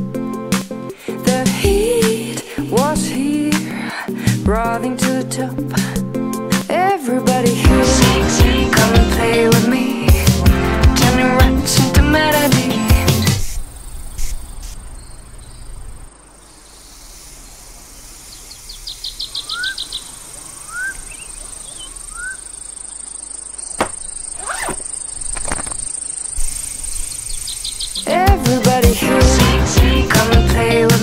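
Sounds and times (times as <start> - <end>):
high-pitched insect buzz: 13.2 - 28.3
cricket-like trill: 13.4 - 28.3
short rising chirps: 18.2 - 28.1.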